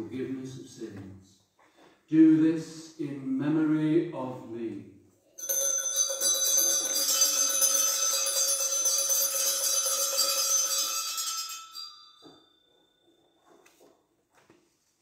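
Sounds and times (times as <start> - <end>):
altar bells jingling: 5.4 - 13.6.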